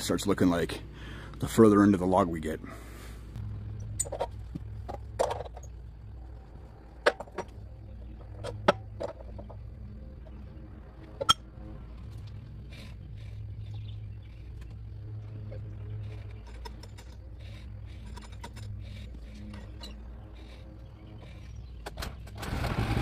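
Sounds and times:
steady low hum: 0.0 - 23.0
knocks and clicks of wood and metal: 4.0 - 5.8, 7.0 - 9.7.

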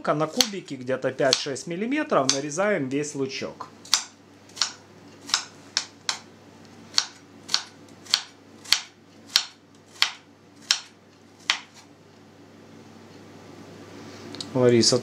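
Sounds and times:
knife chopping on plastic board: 1.2 - 1.5, 3.9 - 6.3, 6.9 - 11.9.

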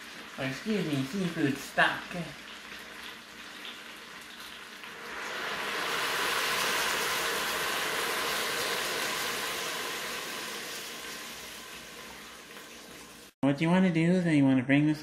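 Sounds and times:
liquid pouring into a pot: 2.2 - 13.3.

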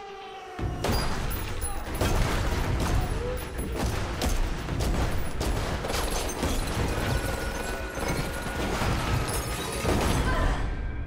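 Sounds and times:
rapid gunfire: 1.9 - 9.4.

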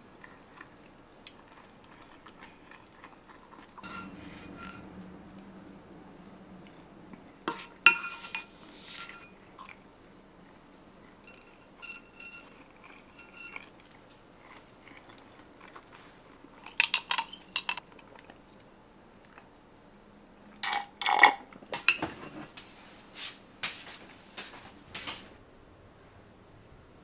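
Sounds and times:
eating sounds: 0.0 - 5.5
glass being handled: 3.8 - 4.8, 7.5 - 9.8, 11.2 - 13.6, 16.6 - 17.8.

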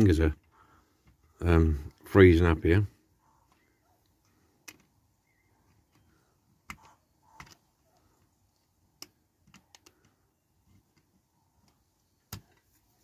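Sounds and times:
faint clicks of toy parts: 3.4 - 13.0.

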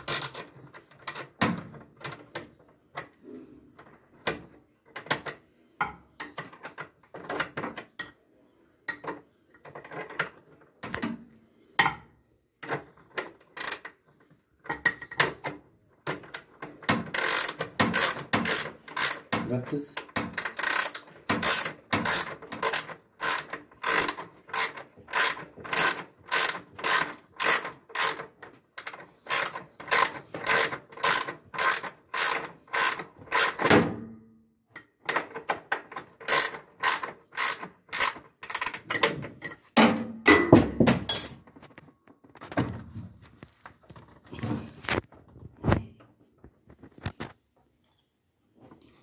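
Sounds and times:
ratchet wrench clicking: 17.1 - 19.3, 20.4 - 33.6, 36.2 - 38.9.

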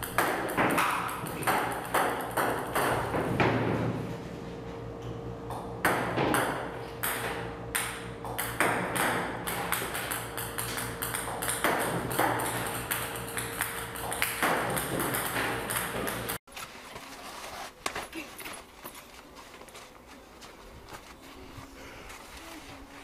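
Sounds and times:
table tennis balls bouncing: 0.0 - 3.9, 5.5 - 16.4.

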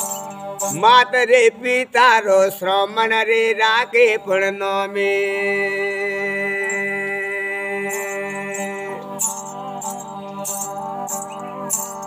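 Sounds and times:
bow bells jingling: 0.0 - 1.1, 6.5 - 12.0.

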